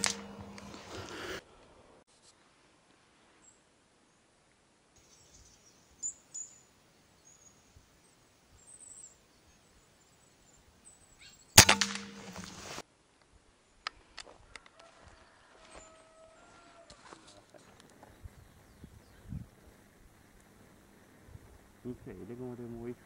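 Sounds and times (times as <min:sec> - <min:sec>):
rifle shot: 0:00.0 - 0:00.8, 0:11.6 - 0:12.7.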